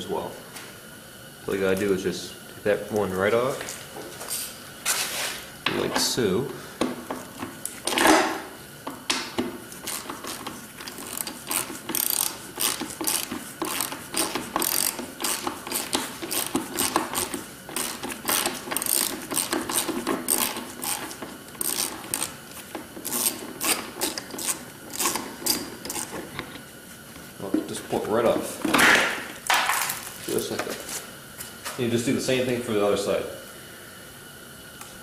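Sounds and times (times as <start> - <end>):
ratchet wrench clicking: 9.8 - 22.4, 23.0 - 26.1.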